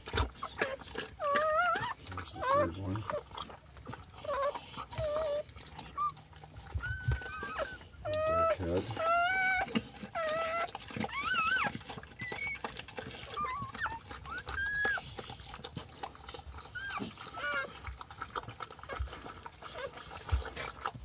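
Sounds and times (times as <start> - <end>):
puppies squealing and crying: 0.0 - 21.0.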